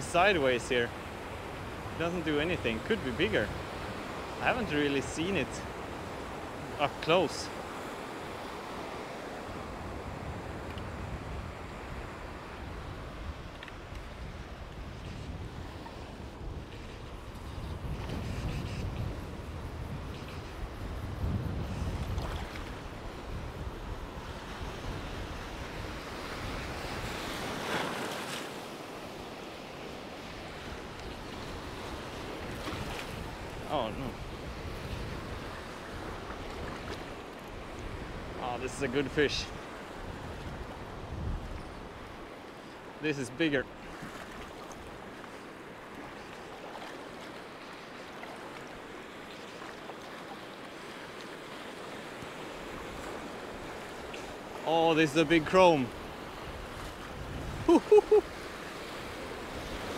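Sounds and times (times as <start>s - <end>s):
sea water lapping: 0.0s - 59.9s
wind buffeting microphone: 9.5s - 27.6s, 30.4s - 38.4s, 39.5s - 42.3s, 55.9s - 59.9s
sea water washing: 41.6s - 59.9s.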